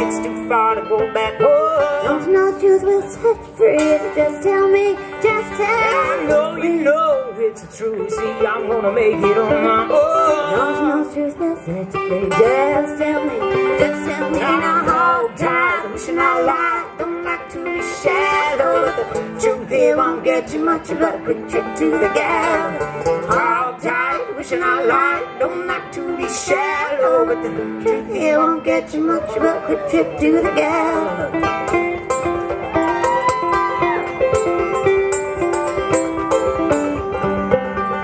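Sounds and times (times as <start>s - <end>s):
two banjos playing: 0.0s - 38.0s.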